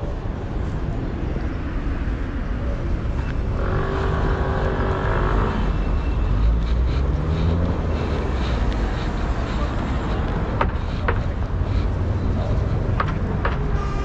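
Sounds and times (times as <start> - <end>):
tram rumbling: 0.0 - 14.0
tram wheels squealing: 3.0 - 14.0.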